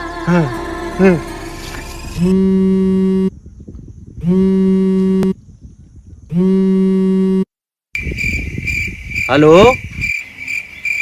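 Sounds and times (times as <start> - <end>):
mobile phone buzzing: 2.2 - 3.3, 4.2 - 5.4, 6.3 - 7.5.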